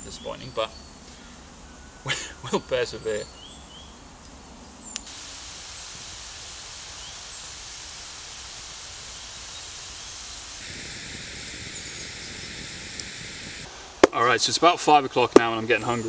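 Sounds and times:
faint bird chirps: 0.0s - 5.1s, 6.8s - 7.5s, 8.7s - 10.6s
campfire logs hissing: 5.0s - 14.1s.

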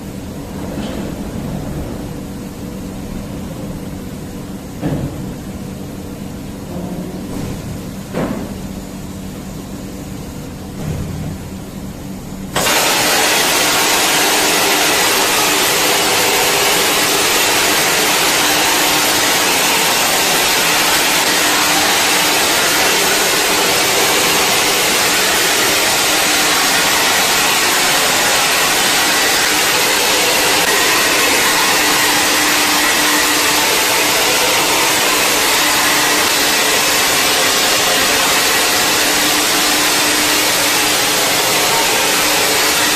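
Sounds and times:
machine hum: 0.0s - 42.9s
loud steady spray hiss: 12.5s - 42.9s.

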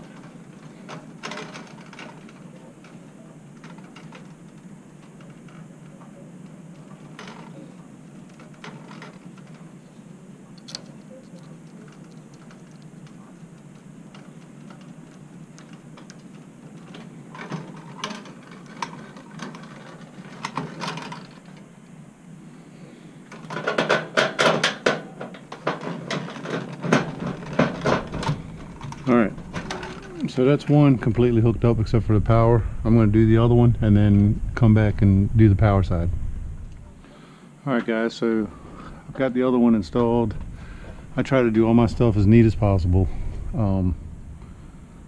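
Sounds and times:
wire handling clicks and rattles: 0.0s - 9.9s, 10.5s - 22.0s, 23.3s - 30.3s
steady low hum: 0.0s - 45.0s.

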